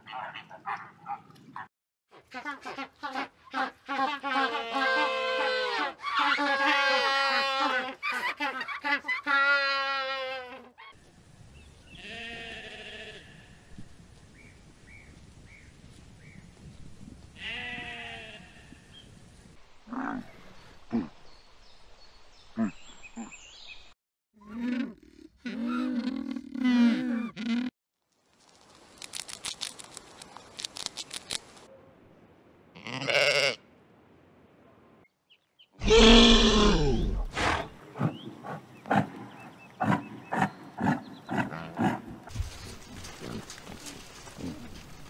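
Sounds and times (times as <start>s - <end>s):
sheep bleating: 12.0s - 13.5s, 32.8s - 33.6s.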